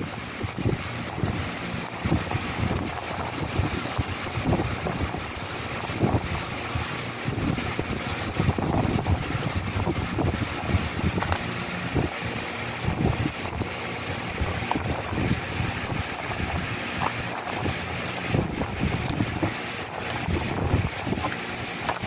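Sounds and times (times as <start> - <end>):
steady rushing background noise: 0.0 - 22.0.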